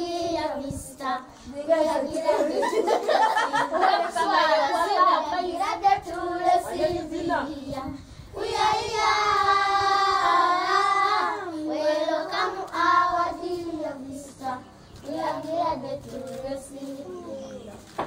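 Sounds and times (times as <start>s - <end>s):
children singing: 8.4s - 17.4s.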